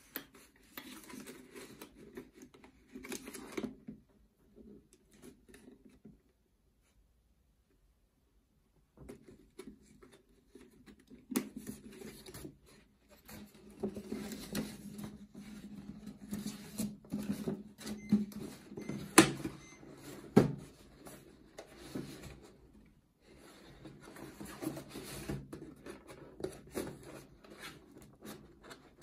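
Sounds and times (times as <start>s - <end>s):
paper rustling and crinkling: 0.0s - 4.0s.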